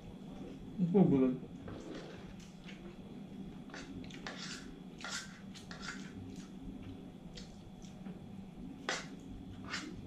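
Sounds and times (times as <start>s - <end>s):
low room hum: 0.0s - 10.0s
cutlery scraping on a plate: 3.7s - 6.2s, 8.8s - 10.0s.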